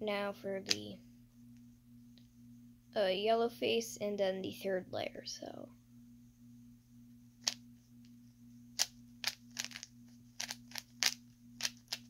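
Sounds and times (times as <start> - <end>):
low hum: 0.0 - 12.0
puzzle cube clicking: 8.8 - 12.0.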